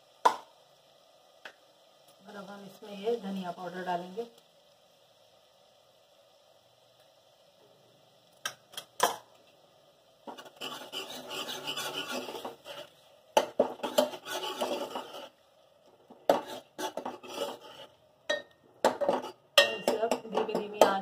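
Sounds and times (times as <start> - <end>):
spoon scraping a steel pot: 10.3 - 12.9, 13.6 - 15.3, 16.3 - 18.0, 18.9 - 20.2.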